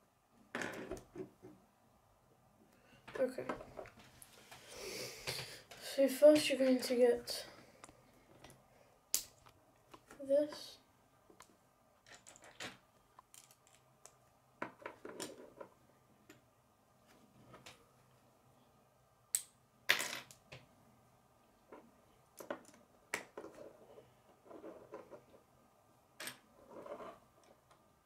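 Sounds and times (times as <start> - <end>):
plastic pieces clicking and snapping: 13.2 - 14.2.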